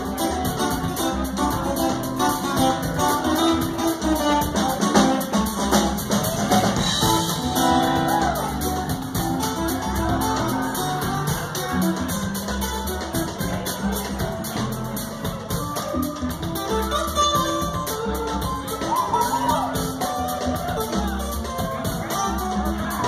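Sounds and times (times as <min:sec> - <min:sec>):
acoustic guitars: 0:00.0 - 0:23.0
upright bass: 0:00.0 - 0:23.0.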